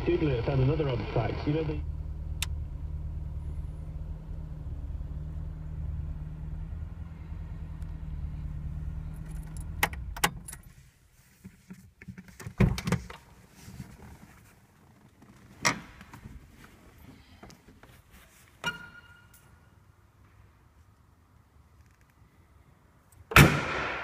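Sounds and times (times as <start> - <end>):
car engine idling: 0.0 - 10.2.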